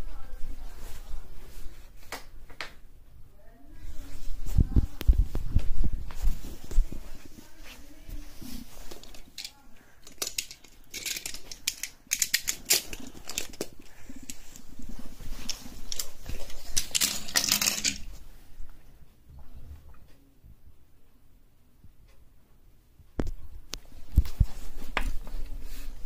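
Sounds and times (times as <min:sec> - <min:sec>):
rubbing on microphone: 0:03.7 - 0:09.2.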